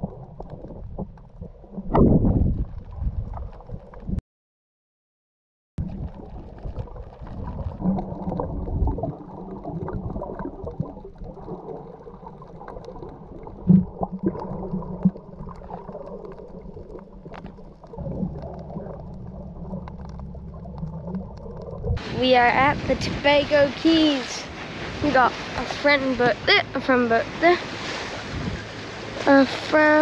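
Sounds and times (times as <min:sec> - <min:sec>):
underwater rumble and gurgling: 0:00.0 - 0:04.2, 0:05.8 - 0:30.0.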